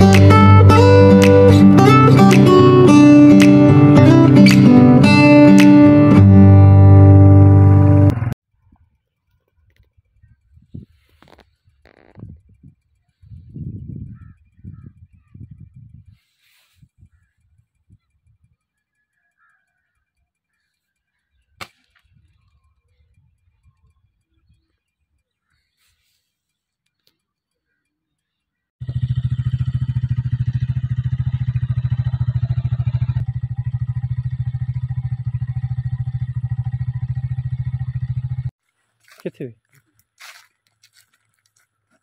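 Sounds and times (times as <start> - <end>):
small bird chirping: 8.6 - 28.7
wind buffeting microphone: 9.9 - 11.1, 11.7 - 16.2.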